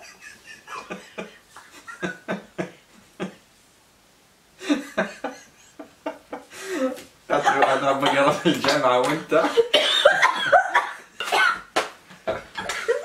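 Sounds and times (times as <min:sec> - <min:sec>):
woman laughing muffled: 0:12.3 - 0:13.0.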